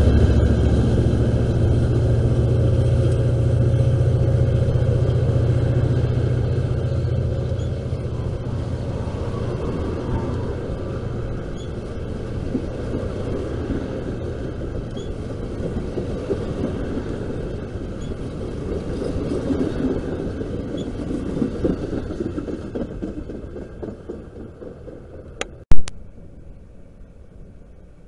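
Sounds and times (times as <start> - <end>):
train wheels rumbling on rails: 0.0 - 25.6
sharp loud click: 25.4 - 26.0.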